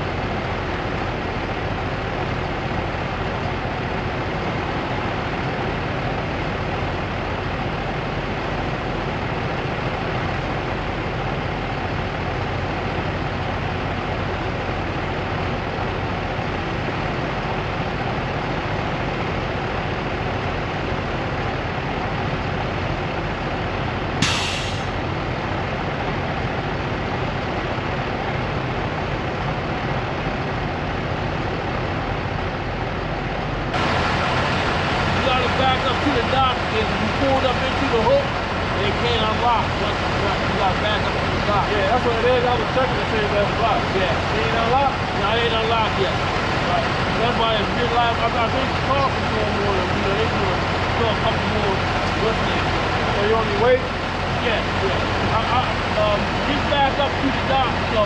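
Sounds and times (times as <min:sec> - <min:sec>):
diesel truck engine idling: 0:00.0 - 0:58.0
short sharp hiss: 0:24.2 - 0:25.0.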